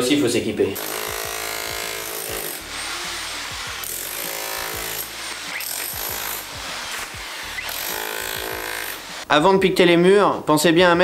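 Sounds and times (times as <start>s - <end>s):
demolition hammer chiselling: 0.8s - 9.0s.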